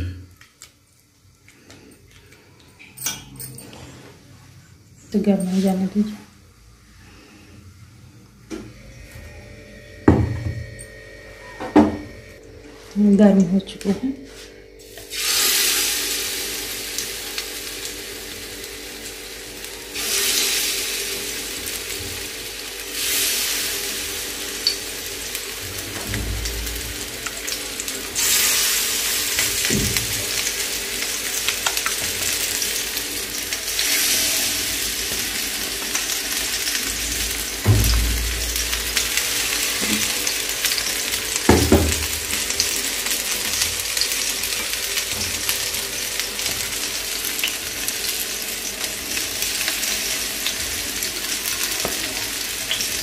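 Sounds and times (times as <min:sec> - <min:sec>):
fish sizzling in hot oil: 0:14.8 - 0:53.0.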